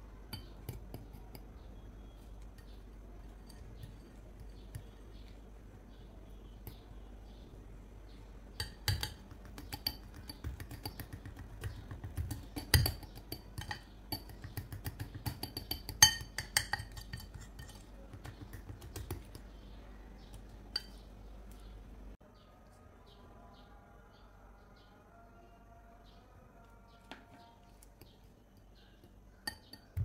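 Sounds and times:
spoon clinking against glass bowl: 0:00.3 - 0:05.4, 0:08.6 - 0:19.4, 0:20.3 - 0:21.1, 0:28.0 - 0:30.0.

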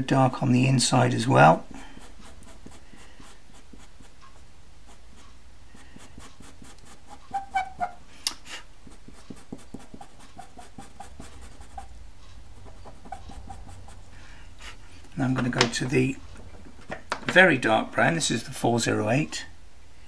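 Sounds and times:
pastel pencil scratching on paper: 0:01.5 - 0:08.0, 0:08.8 - 0:14.8.

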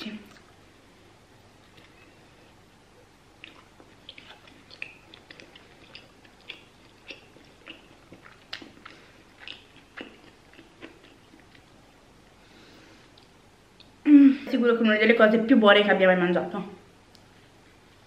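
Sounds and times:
person chewing: 0:01.5 - 0:14.0.

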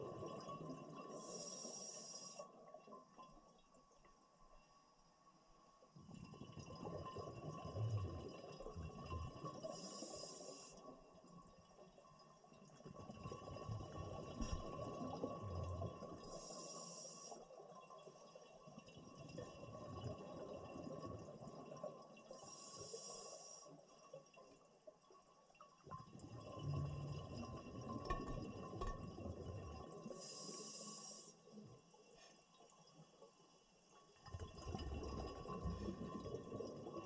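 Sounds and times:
hissing regulator inhalations: 0:01.2 - 0:02.4, 0:16.3 - 0:17.4, 0:22.4 - 0:23.7, 0:30.1 - 0:31.5
gurgle of exhaled bubbles: 0:06.0 - 0:10.7, 0:12.7 - 0:16.5, 0:18.6 - 0:23.0, 0:25.9 - 0:30.5, 0:34.2 - 0:37.0.

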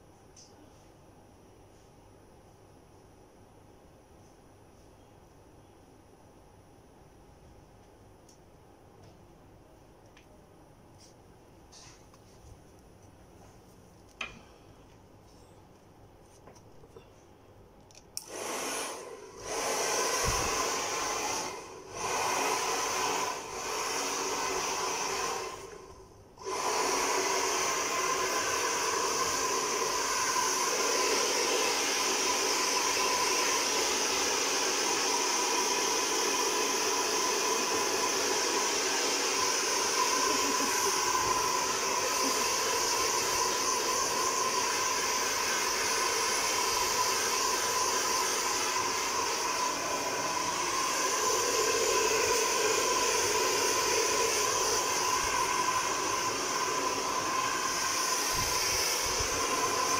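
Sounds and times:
hair dryer blowing: 0:18.2 - 0:59.9.

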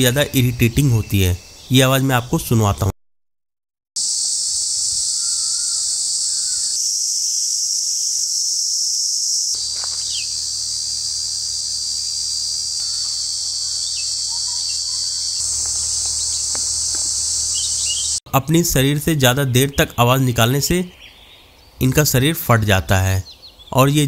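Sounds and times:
cicadas buzzing: 0:04.0 - 0:18.2.

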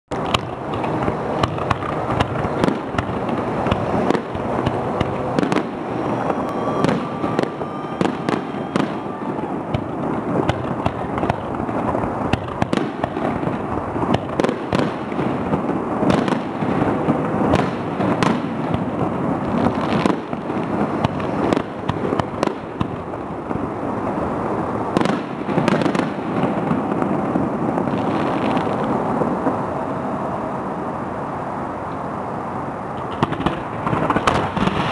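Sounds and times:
fireworks shells bursting: 0:00.1 - 0:23.0
echoing rumble: 0:00.1 - 0:25.4
fireworks crackling: 0:00.1 - 0:34.9.

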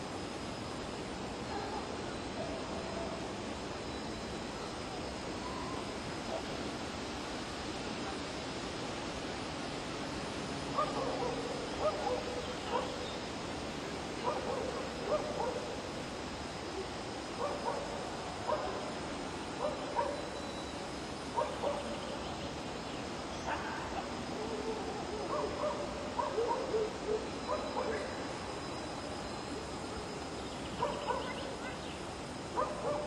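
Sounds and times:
steady background noise: 0:00.0 - 0:33.0
dog barking: 0:01.5 - 0:01.9, 0:10.8 - 0:13.0, 0:14.2 - 0:15.7, 0:18.5 - 0:18.8, 0:19.6 - 0:20.3, 0:21.4 - 0:21.9, 0:25.3 - 0:28.1, 0:30.8 - 0:31.5, 0:32.6 - 0:33.0.

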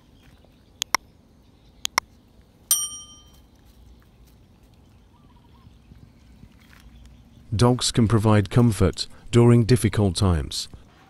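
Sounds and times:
bright bell ding: 0:02.7 - 0:03.4.

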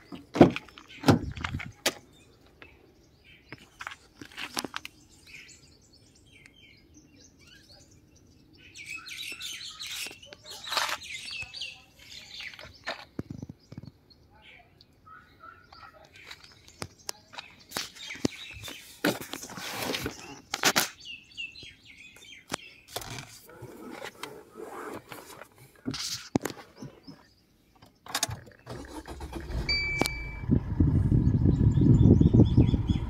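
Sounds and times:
birds chirping: 0:00.0 - 0:33.0
clicks and handling noises: 0:03.5 - 0:05.0, 0:09.9 - 0:14.0, 0:15.7 - 0:21.0, 0:22.4 - 0:27.2
diesel engine starting and running: 0:28.2 - 0:33.0
short beep: 0:29.6 - 0:30.5.

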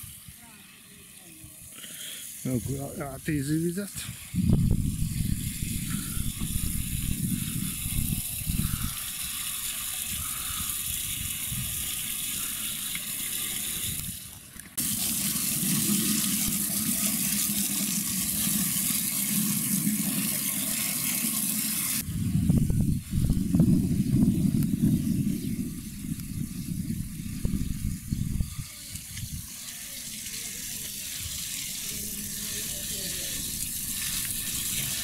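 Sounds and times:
wind rumbling on microphone: 0:04.0 - 0:12.9, 0:22.0 - 0:29.7
water filling plastic bottle: 0:04.6 - 0:22.0, 0:27.2 - 0:35.0.

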